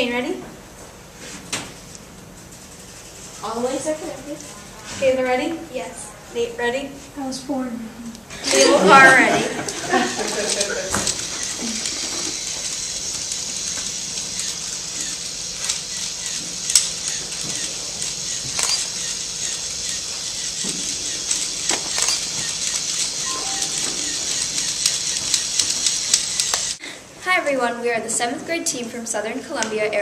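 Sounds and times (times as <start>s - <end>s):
small motor whirring: 10.1s - 26.8s
gears clicking on chain: 10.5s - 23.2s, 24.2s - 26.8s.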